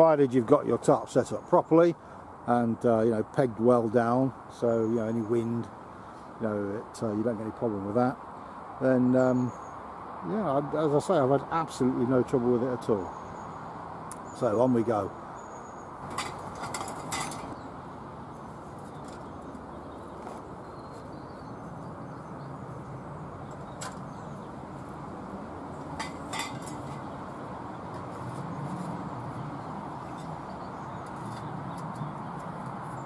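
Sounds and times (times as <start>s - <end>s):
outdoor background hiss: 0.0s - 33.0s
metal pipe clinks and knocks: 16.0s - 17.6s, 25.9s - 27.1s.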